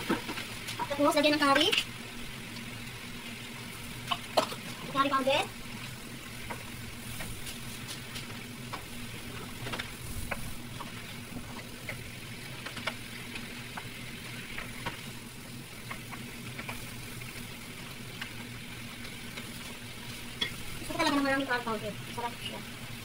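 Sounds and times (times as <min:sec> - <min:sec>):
chicken sizzling in a pan: 0:00.0 - 0:23.0.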